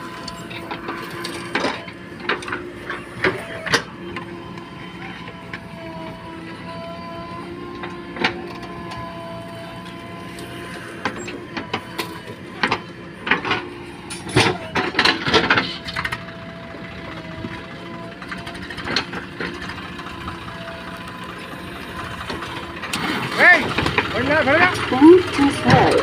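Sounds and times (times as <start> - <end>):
diesel engine running: 0.0 - 26.0
metal clanks and knocks: 10.9 - 16.2.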